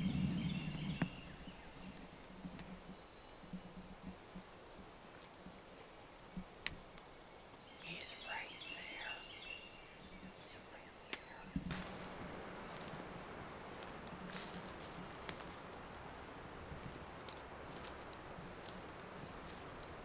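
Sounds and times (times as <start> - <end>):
bird chirping: 0.0 - 6.4, 7.6 - 12.0, 12.6 - 13.7, 16.3 - 16.9, 17.8 - 20.0
light clicks: 11.1 - 11.7
boots walking through dry leaves: 11.6 - 20.0.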